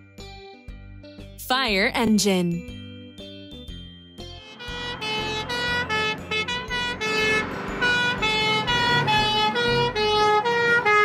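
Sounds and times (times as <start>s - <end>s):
two-tone fire engine siren: 4.4s - 11.0s.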